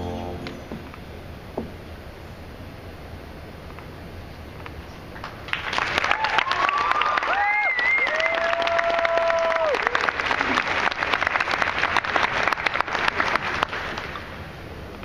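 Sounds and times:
long held tone: 0.0 - 0.8
audience applauding: 5.2 - 14.4.

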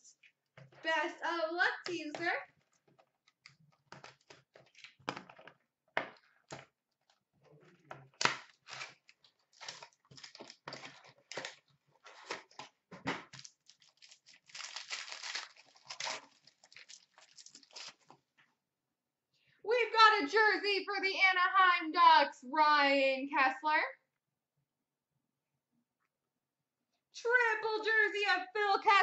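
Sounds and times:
foil pack ripping and crinkling: 8.2 - 12.6, 13.3 - 18.1.

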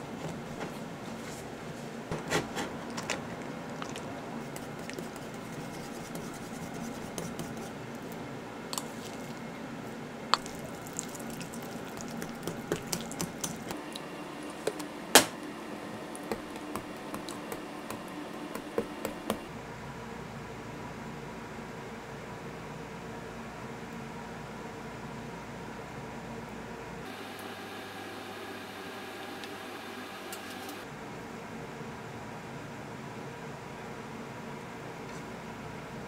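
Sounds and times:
fork stirring wet mixture: 3.3 - 14.8, 15.9 - 19.5.

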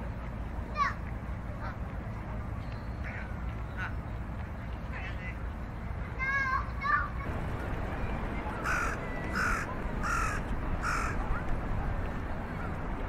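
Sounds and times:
low rumble: 7.2 - 13.0
crow cawing: 8.6 - 11.2.

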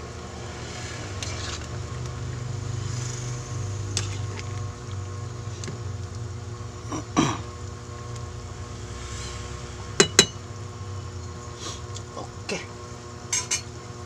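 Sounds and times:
steady low hum: 0.0 - 14.0
metal ladle clinking in pot: 13.3 - 13.7.

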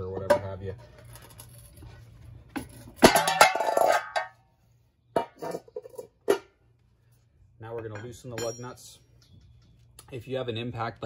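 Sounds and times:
hubcap popping off and ringing: 3.0 - 4.4, 7.8 - 9.4
metal clinks: 7.9 - 9.8.

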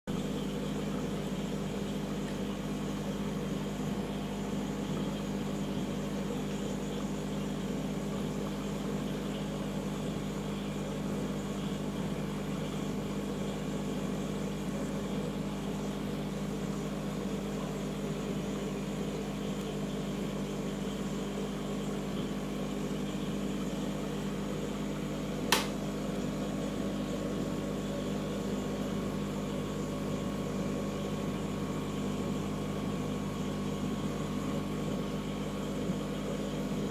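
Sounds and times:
aquarium pump humming: 0.1 - 36.9
sharp click: 25.5 - 25.8.

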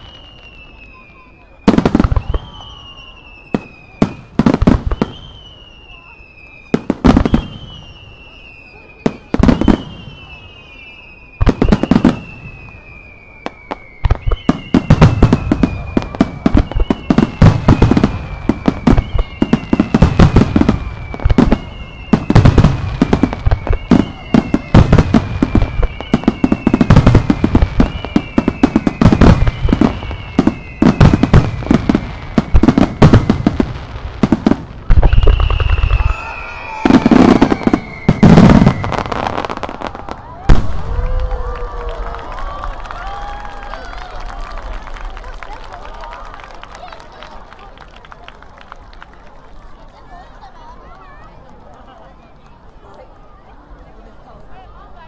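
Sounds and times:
fireworks whistles: 0.0 - 41.2
fireworks bangs: 0.0 - 47.9.

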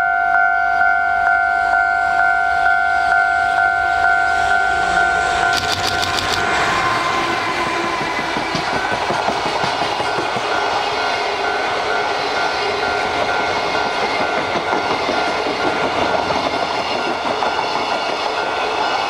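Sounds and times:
level crossing warning bell: 0.0 - 6.5, 10.5 - 14.9
electric locomotive passing: 0.0 - 19.0.

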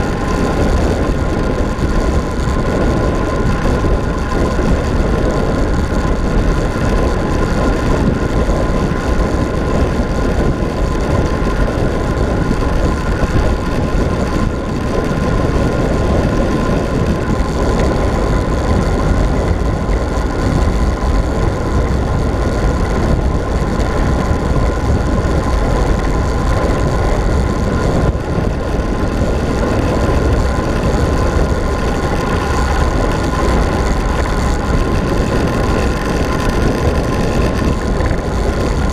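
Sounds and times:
faint steady whine: 0.0 - 38.9
tyre and road noise: 0.0 - 38.9
wind buffeting microphone: 0.0 - 38.9.

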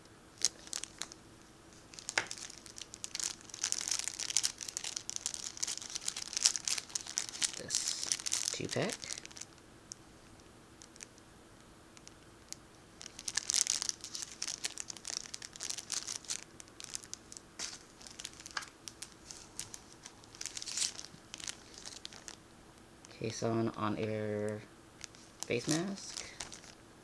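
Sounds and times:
plastic bag crinkling: 0.4 - 1.2, 1.8 - 9.6, 10.8 - 11.2, 13.0 - 22.4, 24.4 - 26.8.

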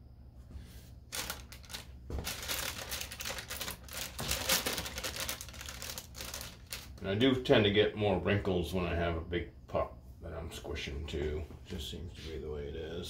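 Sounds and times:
parchment paper crinkling: 1.1 - 7.0.

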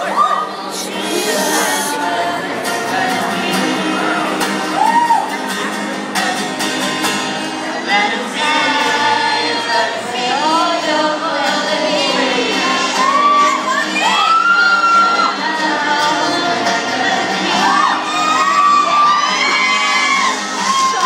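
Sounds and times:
live band playing: 0.0 - 9.9
several people singing: 0.0 - 21.0.

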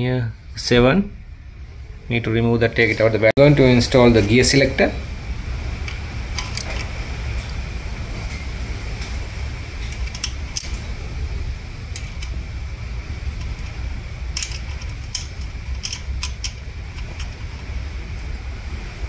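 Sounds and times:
steady low rumble: 0.0 - 19.0
wrench clicking on a nut: 14.4 - 17.3.

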